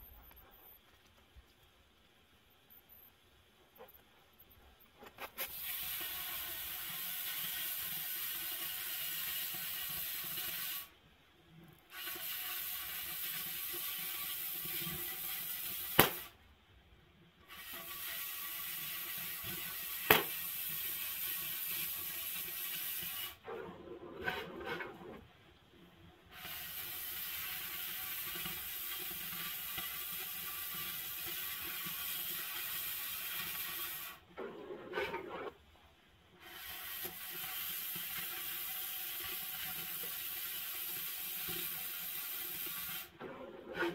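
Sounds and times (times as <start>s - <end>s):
cutting torch hissing: 5.1s - 11.0s, 11.8s - 16.4s, 17.4s - 23.4s, 26.2s - 34.3s, 36.4s - 43.2s
sharp cracks: 16.0s - 16.4s, 20.1s - 20.4s.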